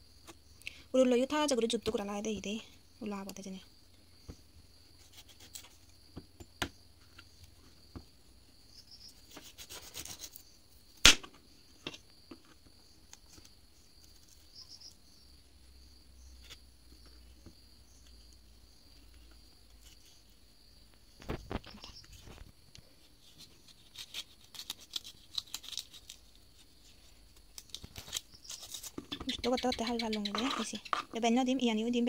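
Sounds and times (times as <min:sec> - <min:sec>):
knife scraping vegetable: 0:04.9 - 0:05.8, 0:09.1 - 0:10.5, 0:23.2 - 0:26.3, 0:28.0 - 0:29.2.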